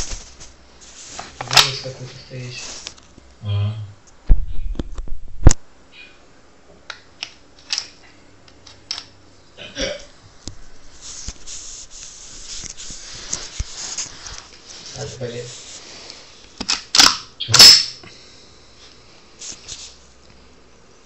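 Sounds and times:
rubbing: 0:11.0 - 0:16.0
sharp rifle click: 0:16.6 - 0:18.0.

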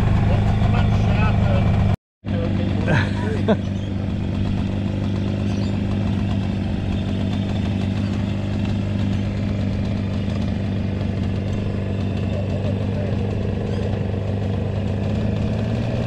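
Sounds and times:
two-stroke engine idling: 0:00.0 - 0:16.0.

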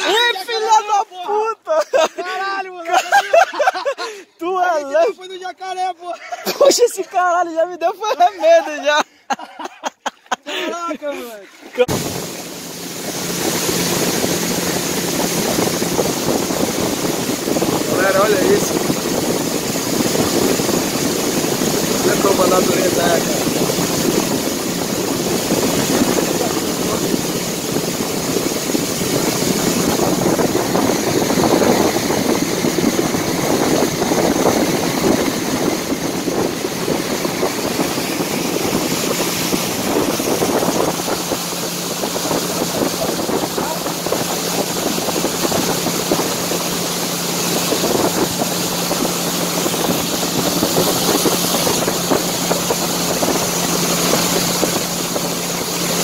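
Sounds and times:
boat motor humming: 0:11.3 - 0:56.0.

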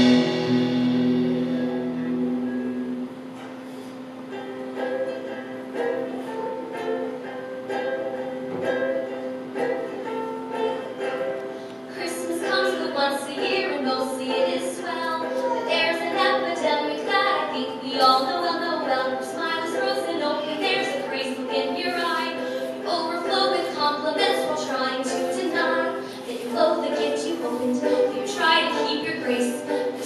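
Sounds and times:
ukulele chords: 0:00.0 - 0:30.0
woman singing: 0:11.9 - 0:30.0.

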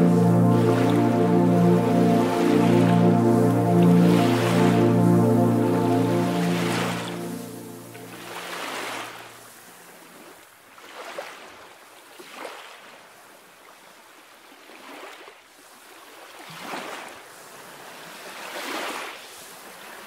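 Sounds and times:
sea surf washing in: 0:00.0 - 0:09.5.

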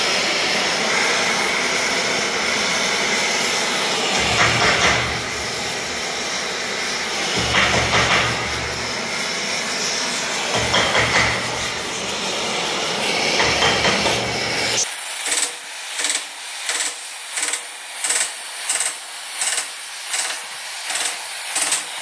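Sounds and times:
torch flame hissing: 0:00.0 - 0:22.0
low rumble: 0:04.2 - 0:09.7.

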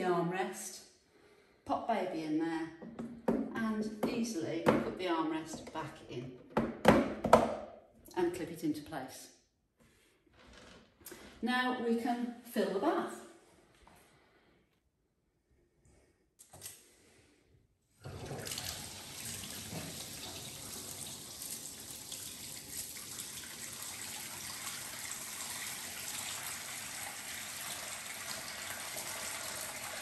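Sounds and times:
water running into bathtub: 0:18.0 - 0:30.0.

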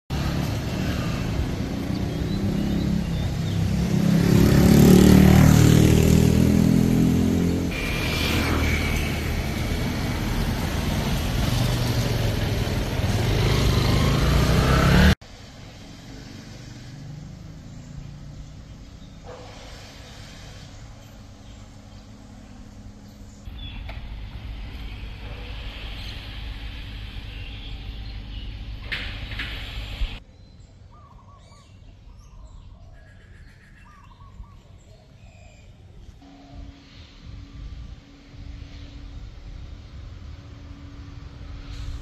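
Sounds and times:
small motorcycle engine running: 0:00.2 - 0:15.2.

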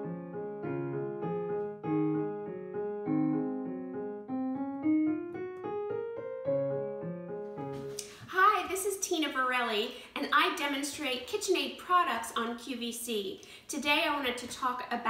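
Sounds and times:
light keyboard tune: 0:00.0 - 0:08.0.

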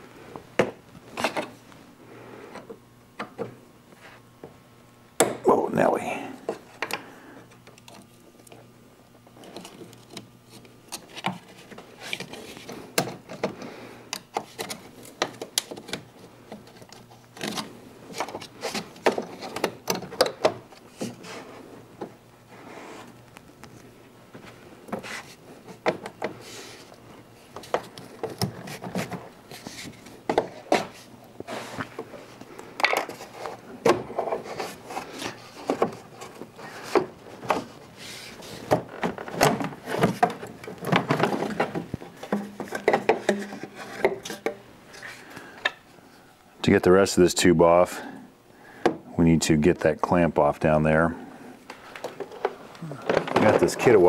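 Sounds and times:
plastic parts clicking and scraping: 0:09.4 - 0:21.4, 0:32.8 - 0:45.8.

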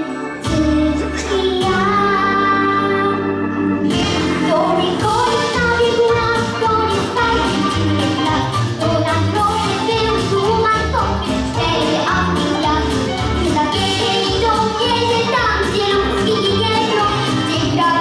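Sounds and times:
girl singing pop song: 0:00.0 - 0:18.0
instrumental accompaniment: 0:00.0 - 0:18.0.

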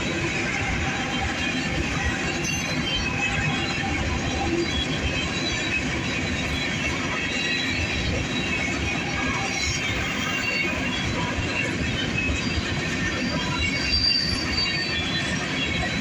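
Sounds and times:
train wheels rumbling on rails: 0:00.0 - 0:16.0
high-pitched wheel squeal: 0:00.6 - 0:16.0.

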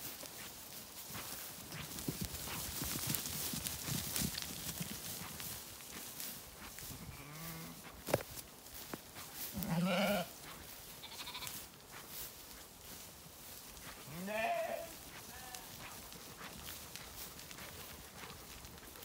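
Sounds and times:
sheep bleating: 0:09.5 - 0:10.4, 0:11.0 - 0:11.6, 0:14.1 - 0:15.7.

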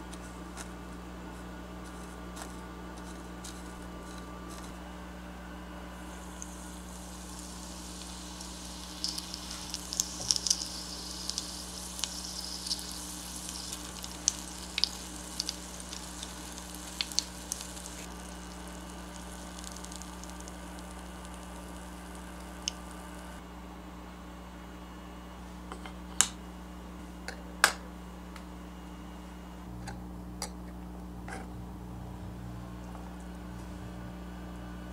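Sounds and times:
shrimp deep-frying in oil: 0:05.9 - 0:23.4
oil popping and crackling: 0:06.0 - 0:23.4.

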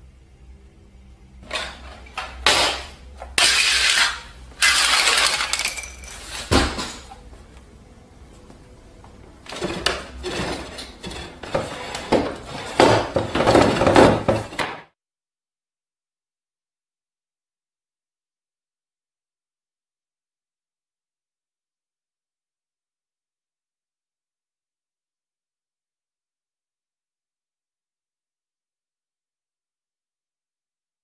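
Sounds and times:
objects crashing and clattering: 0:01.4 - 0:07.1, 0:09.5 - 0:14.8.

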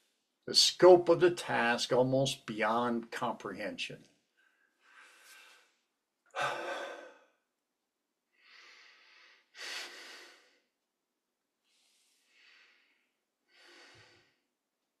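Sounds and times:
man breathing: 0:04.4 - 0:05.8, 0:06.4 - 0:07.4, 0:08.3 - 0:10.7, 0:11.7 - 0:14.5.

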